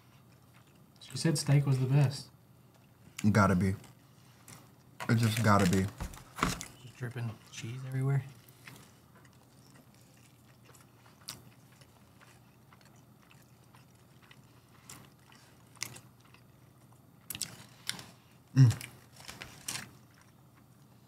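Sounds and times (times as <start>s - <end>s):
close-miked chewing: 0.0s - 1.2s, 6.6s - 21.0s.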